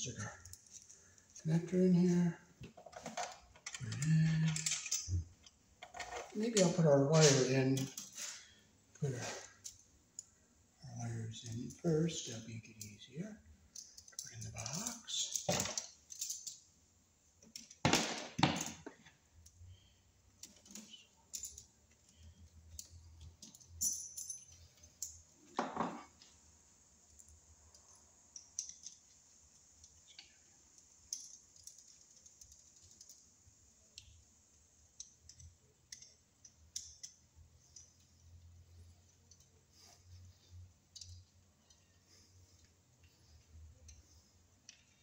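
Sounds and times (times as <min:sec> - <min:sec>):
small metal clicks and taps: 0:27.0 - 0:39.6, 0:40.9 - 0:43.2, 0:43.8 - 0:45.0.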